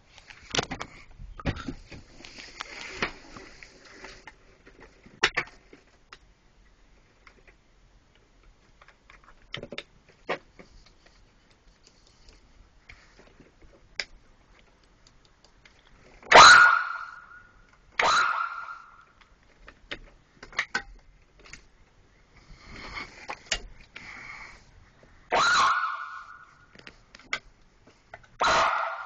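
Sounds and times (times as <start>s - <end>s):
sharp clicks and knocks: 19.1s - 21.7s.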